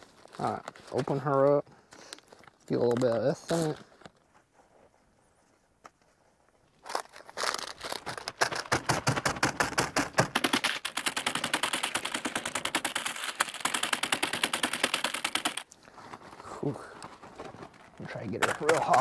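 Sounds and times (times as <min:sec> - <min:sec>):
chip bag crinkling and crushing: 0:06.8 - 0:09.7, 0:10.3 - 0:19.0.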